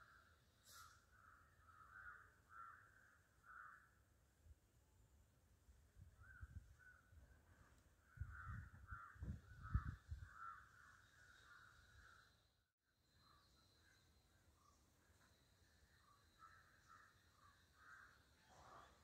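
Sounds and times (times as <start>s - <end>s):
crows cawing: 1.2s - 4.0s, 8.1s - 12.1s, 16.5s - 18.2s.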